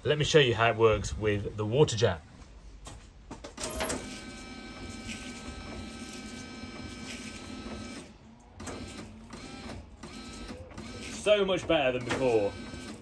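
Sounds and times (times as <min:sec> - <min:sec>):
washer pump and wipers whirring: 0:03.5 - 0:13.0.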